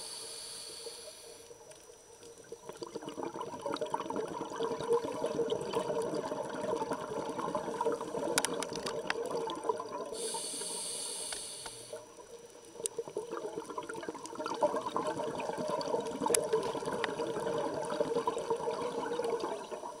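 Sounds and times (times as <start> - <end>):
regulator hissing inhale: 0.0 - 1.6, 10.1 - 12.1
exhaled bubbles underwater: 1.6 - 10.6, 11.9 - 20.0.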